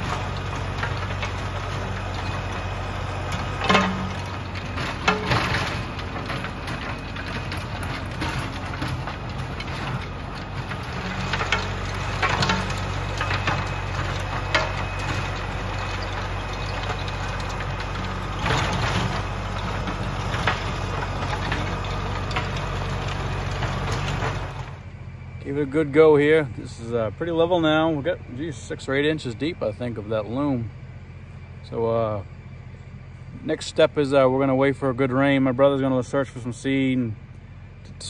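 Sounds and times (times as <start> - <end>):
rotary tiller in soil: 0.0 - 26.6
tractor diesel engine running: 0.0 - 38.0.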